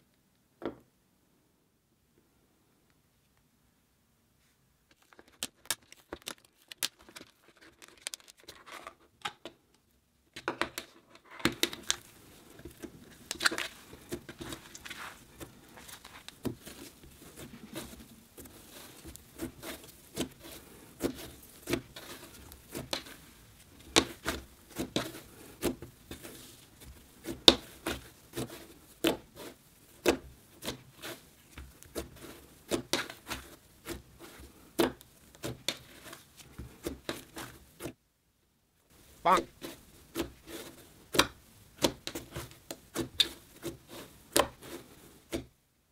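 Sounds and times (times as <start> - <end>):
slime crackling and popping: 4.9 - 8.5, 11.5 - 20.4.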